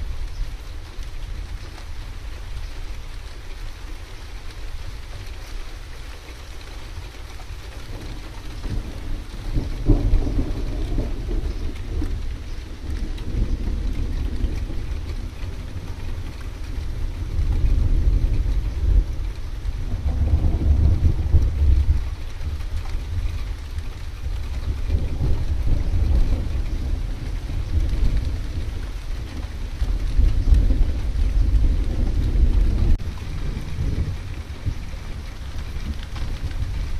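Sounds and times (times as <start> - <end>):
rain hiss: 0.0 - 36.9
rolling thunder: 7.6 - 36.9.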